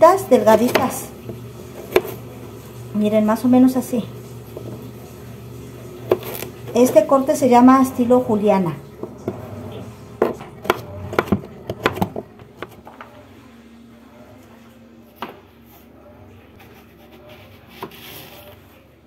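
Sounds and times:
knife chopping on plastic board: 0.5s - 2.2s, 6.1s - 6.5s, 10.2s - 12.9s.

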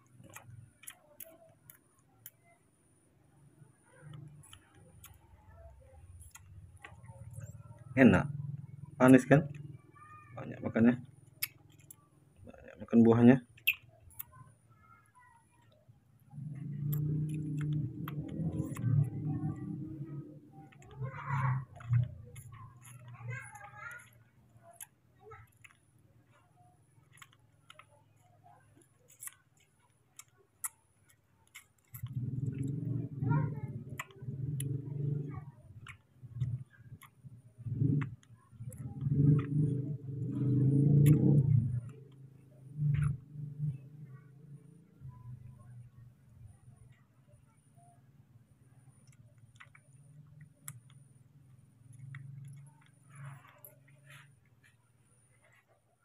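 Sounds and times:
low steady hum: 15.4s - 56.0s.

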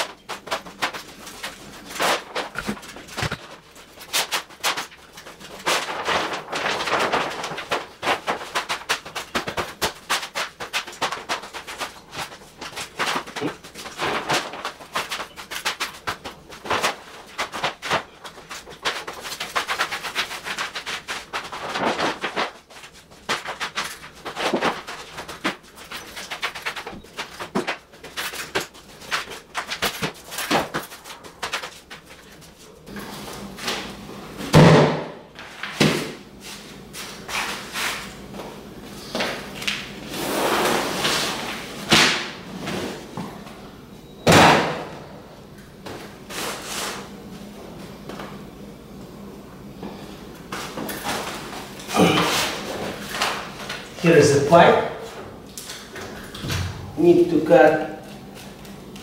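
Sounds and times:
plastic sheeting crinkling: 0.0s - 32.7s.

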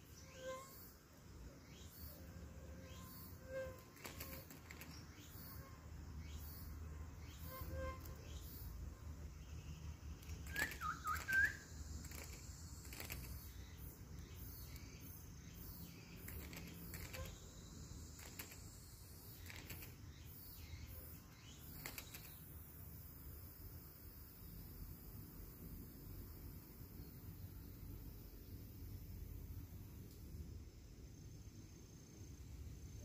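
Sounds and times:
faint clicks and chirps: 2.8s - 8.5s, 9.4s - 22.6s
bird whistling song: 10.2s - 13.2s.

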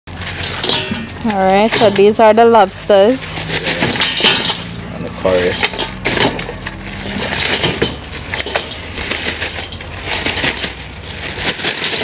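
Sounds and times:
plastic bag crinkling: 5.4s - 12.0s.

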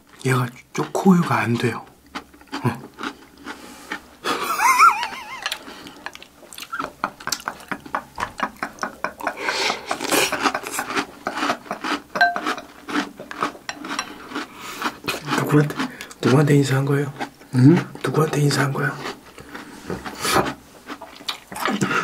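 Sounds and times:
crunchy chewing: 0.8s - 8.9s, 9.7s - 22.0s
people laughing: 4.2s - 5.6s, 6.7s - 11.8s
spoons clicking against glass bowls: 12.2s - 12.7s.

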